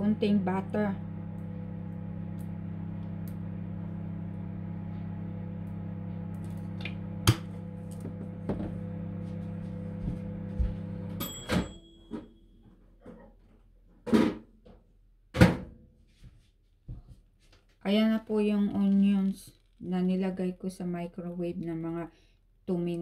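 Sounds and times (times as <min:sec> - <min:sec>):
microwave oven humming: 0:00.0 - 0:12.6
microwave clicks: 0:05.6 - 0:08.1
microwave beep: 0:11.0 - 0:12.6.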